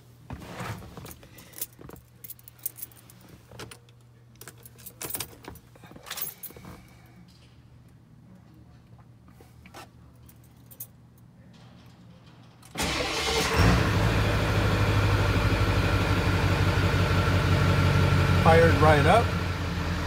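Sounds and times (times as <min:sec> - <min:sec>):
keys jangling and clicking: 0:01.0 - 0:07.6, 0:10.2 - 0:12.8.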